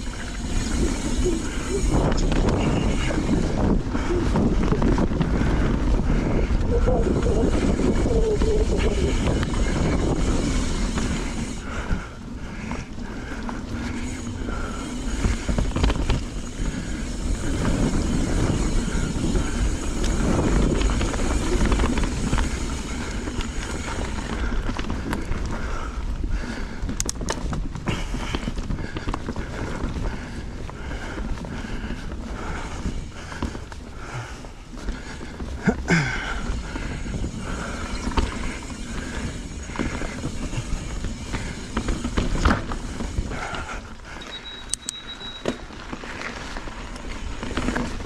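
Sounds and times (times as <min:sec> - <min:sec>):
wind on microphone: 0:00.0 - 0:12.2
bike clicks and rattles: 0:00.0 - 0:48.0
tyres rumbling on dirt trail: 0:00.0 - 0:48.0.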